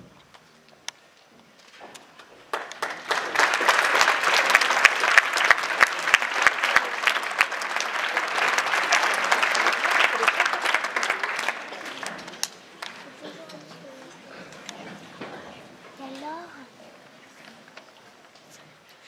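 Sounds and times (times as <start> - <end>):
audience applauding: 2.4 - 13.3.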